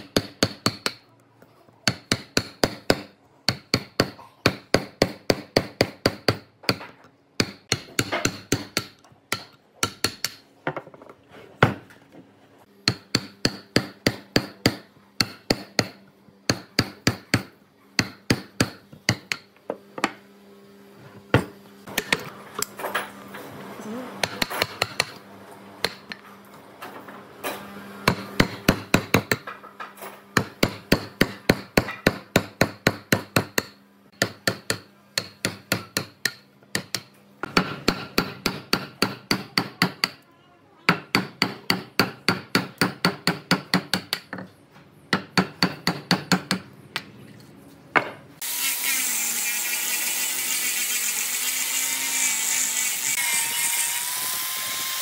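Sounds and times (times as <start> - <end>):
hatchet chopping wood: 0.0 - 1.0, 1.9 - 10.4, 12.8 - 19.5, 24.2 - 25.2, 30.4 - 40.2, 40.9 - 44.3
mallet driving chisel into wood: 1.9 - 10.8, 12.8 - 20.2
angle grinder sanding wood: 48.4 - 55.0.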